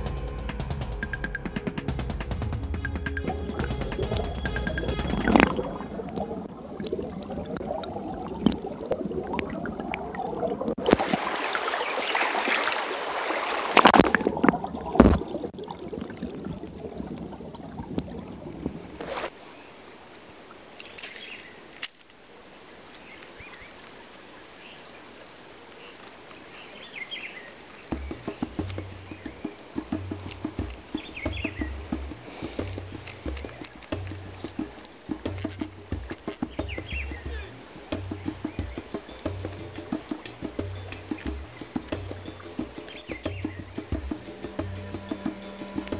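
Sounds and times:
water sloshing and splashing: 3.2s - 19.3s.

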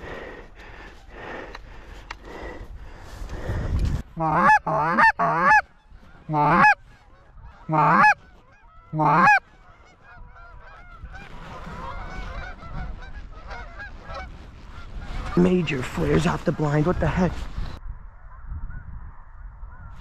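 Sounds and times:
distant flock of geese calling: 4.1s - 16.3s
goose call honks: 4.2s - 5.6s, 6.2s - 11.1s.

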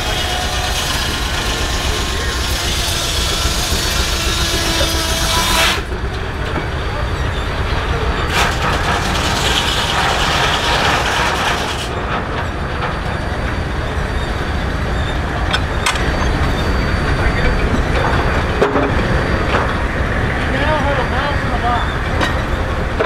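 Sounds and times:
saw cutting wood: 0.0s - 6.0s, 8.2s - 12.0s
sawmill machinery running: 0.0s - 23.0s.

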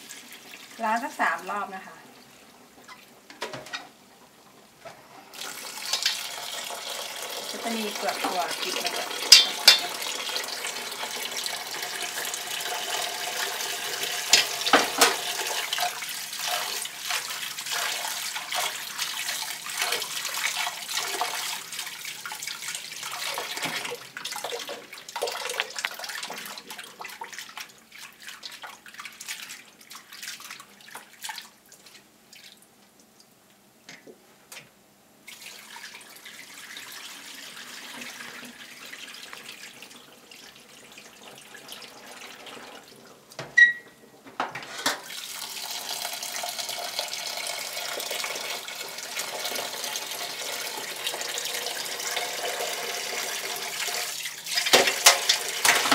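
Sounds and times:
tap water running into bowl: 5.3s - 27.7s, 35.3s - 43.6s, 44.8s - 55.9s
water pouring into sink: 5.3s - 31.6s, 35.3s - 43.1s, 44.8s - 55.9s
hands swishing beans in water: 23.3s - 32.6s.

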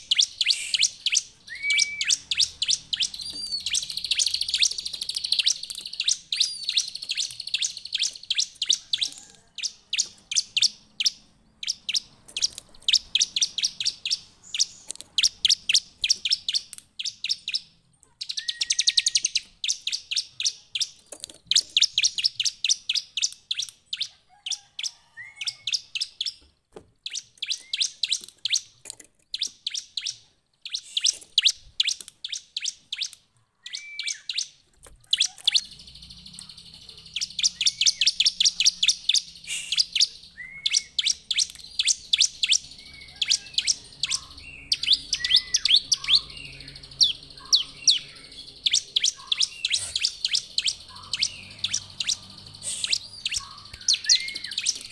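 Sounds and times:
bird chirping high sharp trains: 0.0s - 20.5s, 35.5s - 54.9s.

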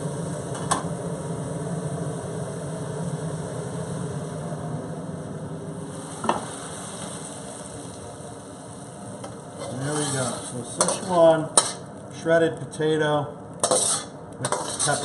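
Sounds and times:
low rushing noise: 0.0s - 9.2s
metal spatula scraping wok: 9.6s - 11.8s, 13.6s - 15.0s.

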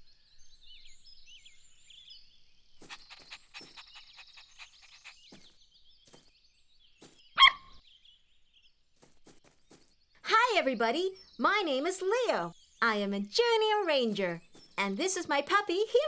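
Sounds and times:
small birds chirping: 0.0s - 16.0s
puppy panting: 2.8s - 5.5s
puppy bark: 7.4s - 7.8s.

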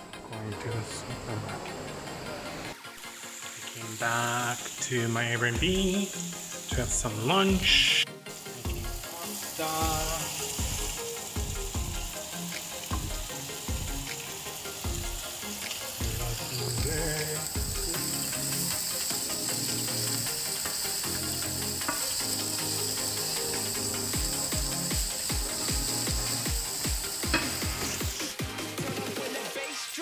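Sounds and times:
bacon and onion sizzling in a pan: 2.2s - 30.0s.

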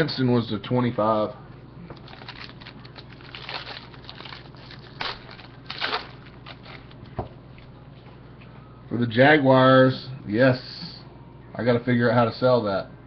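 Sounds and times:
foil pack crinkling: 2.0s - 7.2s.

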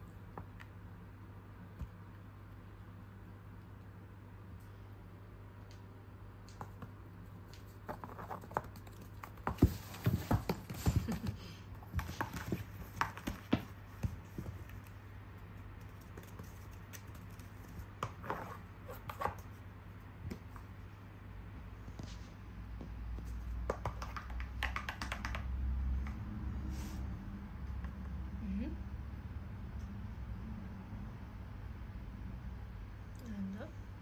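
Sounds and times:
steady low hum: 0.0s - 23.7s
cat paws scratching and tapping: 6.4s - 19.6s, 22.8s - 26.3s.

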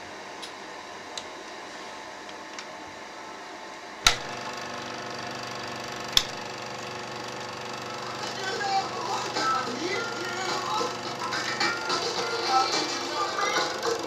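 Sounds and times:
projector motor humming: 0.0s - 14.0s
sharp switch click: 4.0s - 4.4s, 6.1s - 6.4s.

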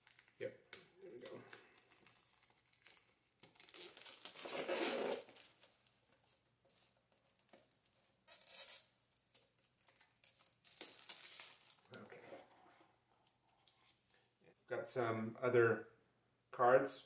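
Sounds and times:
plastic shrink wrap crinkling and tearing: 0.0s - 12.2s.

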